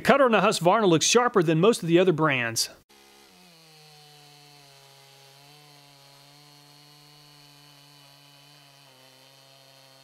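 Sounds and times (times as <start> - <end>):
chainsaw cutting wood: 2.9 - 10.0.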